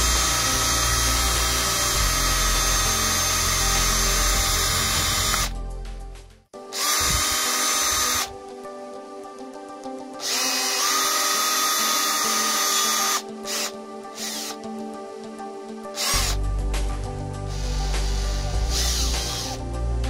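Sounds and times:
cordless drill drilling plastic: 0.0 - 5.5, 6.8 - 8.3, 10.2 - 14.6, 16.0 - 16.4, 17.5 - 19.6.

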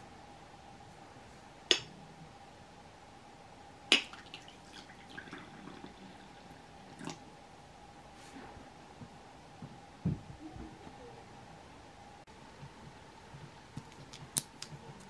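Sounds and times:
tea pouring into cup: 4.0 - 7.2.

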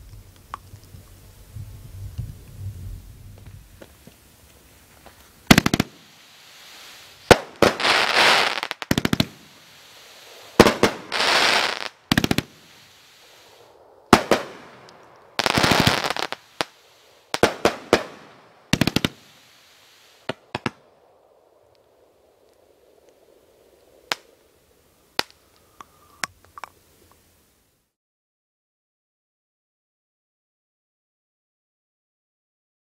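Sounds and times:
firework hissing crackle: 0.0 - 26.2
firework bangs: 5.4 - 20.8.

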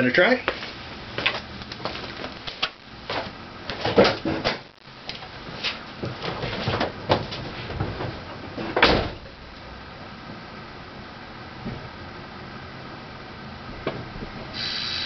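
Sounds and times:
footsteps: 0.4 - 4.4
knocks and clunks: 3.1 - 4.7, 6.0 - 9.3.

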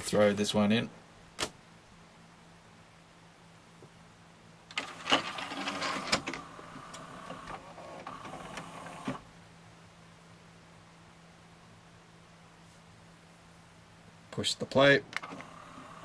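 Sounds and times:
disc tray motor whirring: 4.7 - 9.2, 15.2 - 16.0.

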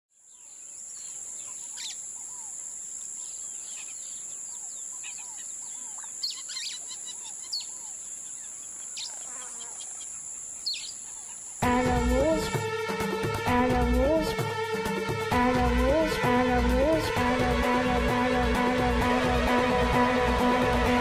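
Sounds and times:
birds chirping: 0.2 - 11.6.

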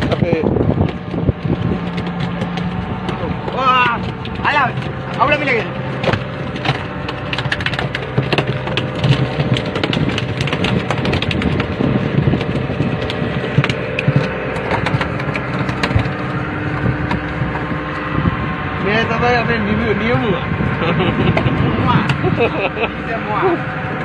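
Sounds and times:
sharp knocks and taps: 0.0 - 18.0
boat engine running: 0.0 - 24.0.

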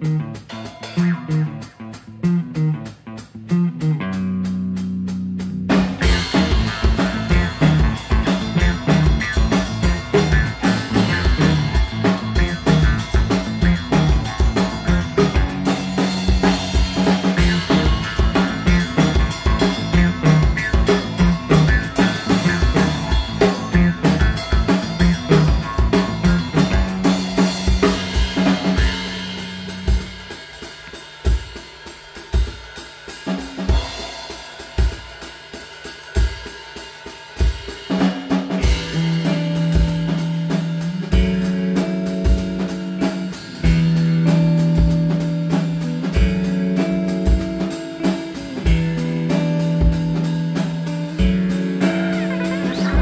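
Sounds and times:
drum kit beat: 0.0 - 53.0
didgeridoo drone: 6.0 - 28.8.

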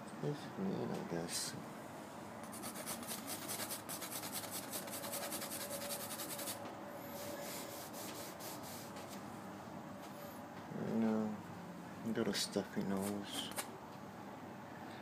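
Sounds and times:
paintbrush scrubbing on canvas: 2.5 - 6.6, 7.2 - 9.2.

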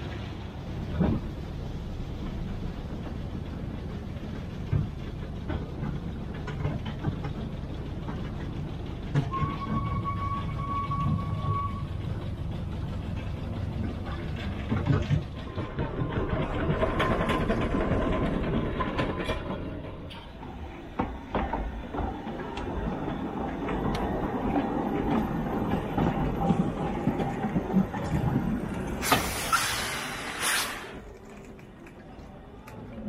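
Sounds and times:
steam locomotive rumbling: 0.0 - 33.0
steam hissing: 29.0 - 31.0.

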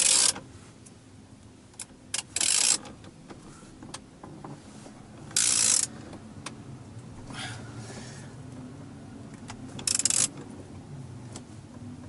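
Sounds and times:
ratchet wrench clicking: 0.0 - 0.4, 1.8 - 2.9, 5.3 - 5.9, 9.8 - 10.4.

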